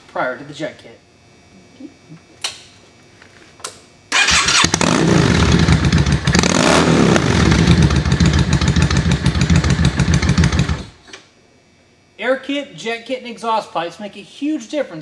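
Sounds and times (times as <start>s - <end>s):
motorcycle engine starting and running: 4.1s - 11.0s.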